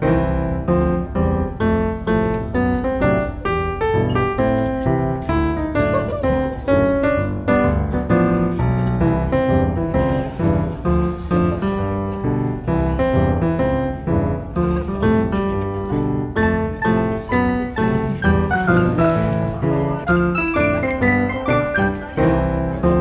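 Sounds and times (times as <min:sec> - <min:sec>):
quick run of instrumental notes: 0:20.1 - 0:22.3.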